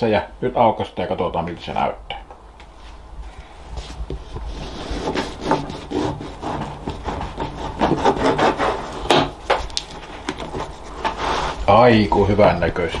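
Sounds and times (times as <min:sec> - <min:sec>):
knife sawing through bread crust: 0:04.5 - 0:09.3, 0:10.4 - 0:11.7.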